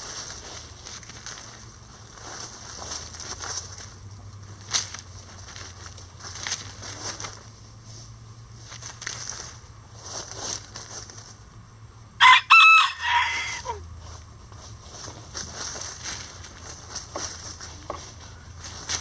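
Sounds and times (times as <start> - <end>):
chickens scratching in dry leaves: 0.0 - 19.0
rooster crowing: 12.2 - 13.8.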